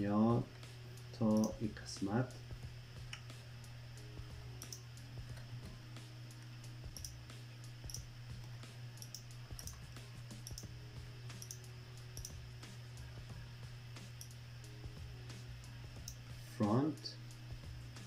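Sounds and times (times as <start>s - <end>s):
steady low hum: 0.0s - 18.0s
computer mouse clicking: 1.3s - 1.6s, 4.6s - 5.5s, 6.9s - 7.2s, 9.0s - 10.7s, 11.3s - 12.4s.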